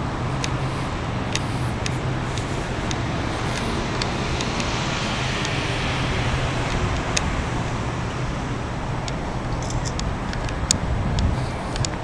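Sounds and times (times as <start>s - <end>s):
road traffic hum: 0.0s - 12.0s
light sharp clicks: 9.0s - 12.0s.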